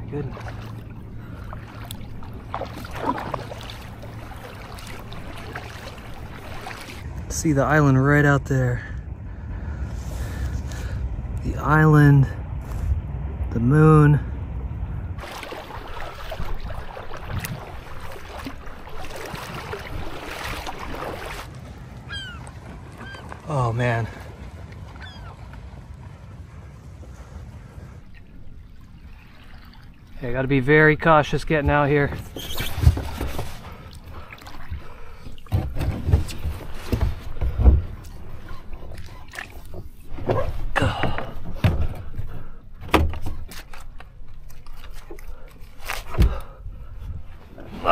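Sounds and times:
paddle strokes: 0.0 - 7.1, 15.2 - 30.2, 31.2 - 47.9
water splashing around kayak: 0.0 - 7.6, 15.2 - 47.9
kayak thumping on rocks: 35.4 - 38.2.

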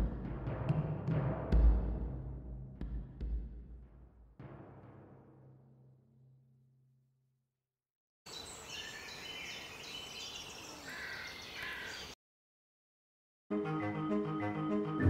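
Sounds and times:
low drum notes: 0.0 - 5.5
small birds chirping: 8.3 - 12.2
crows cawing: 10.8 - 12.2.

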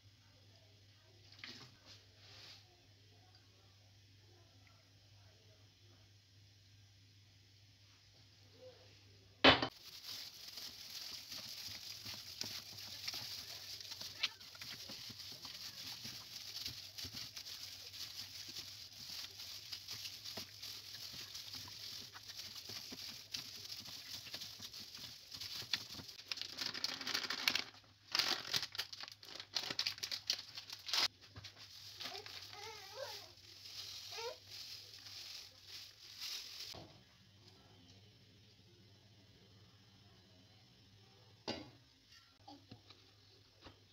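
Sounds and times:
plastic bag crinkling: 9.7 - 36.8.

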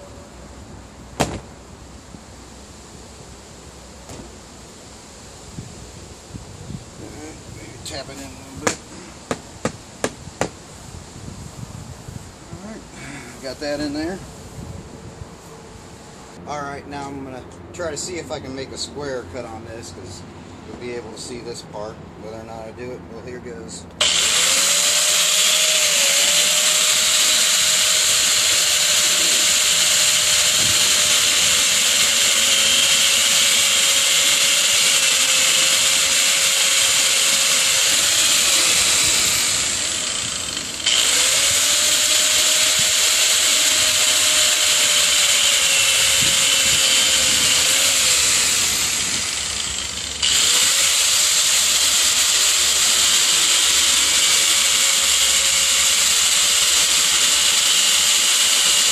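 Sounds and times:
power tool cutting pipe: 24.0 - 58.9.

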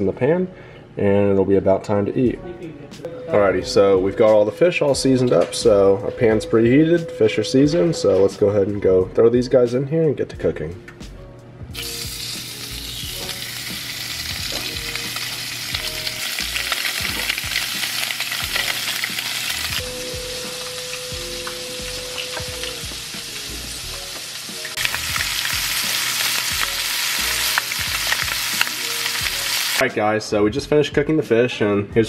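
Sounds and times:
fish fillets sizzling in a pan: 11.8 - 29.8.

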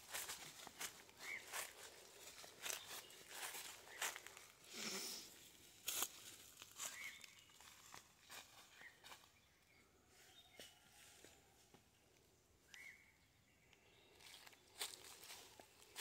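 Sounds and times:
footsteps on dry leaves: 0.0 - 9.4, 14.1 - 16.0
forest ambience: 0.0 - 16.0.

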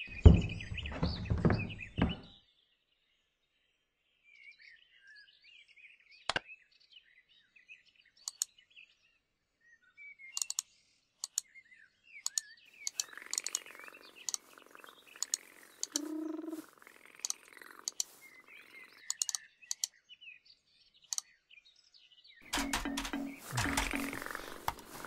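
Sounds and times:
sharp clicks: 8.3 - 8.5, 10.4 - 10.6, 11.2 - 11.4, 12.3 - 14.4, 15.1 - 16.1, 17.1 - 18.2, 19.0 - 19.9, 22.5 - 25.0
cartoon bird-like chirps: 15.2 - 18.2.

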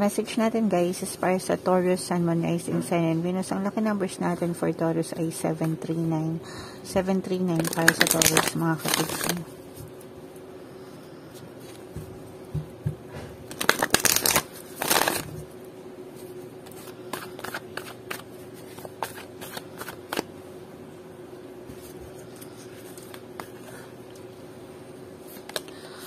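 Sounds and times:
cards being shuffled: 7.6 - 9.4, 13.5 - 15.4, 16.6 - 20.3, 21.7 - 23.8, 25.2 - 25.8.

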